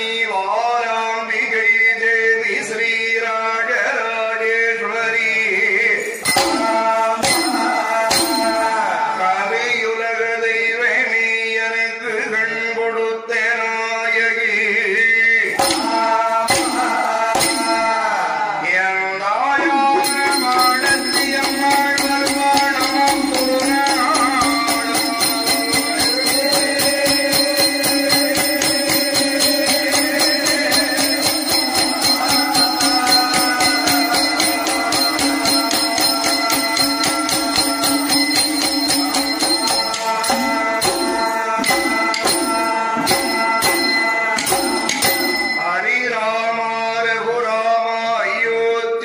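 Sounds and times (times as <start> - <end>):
percussion: 3.6 - 11.1, 14.9 - 46.6
bow bells jingling: 6.0 - 9.0, 15.5 - 18.2, 20.0 - 46.0.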